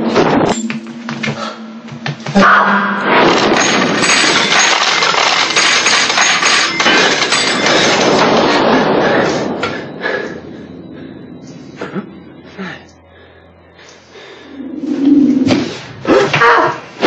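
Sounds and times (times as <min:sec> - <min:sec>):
coins clattering: 0:03.3 - 0:08.5.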